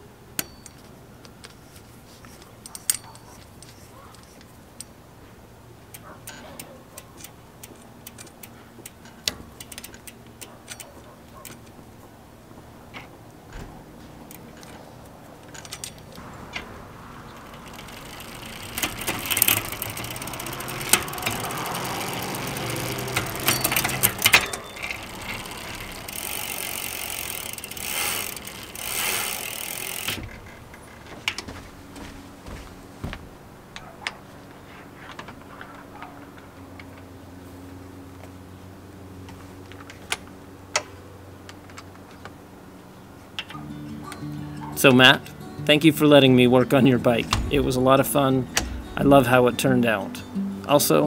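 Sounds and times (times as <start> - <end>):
bicycle drivetrain whirring: 1.4 - 4.6, 5.8 - 49.4
chain tool clicking: 5.9 - 11.7, 17.6 - 30.3.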